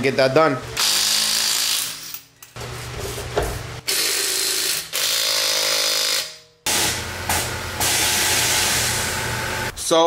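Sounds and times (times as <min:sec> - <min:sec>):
cordless power tool running: 0:06.7 - 0:09.7.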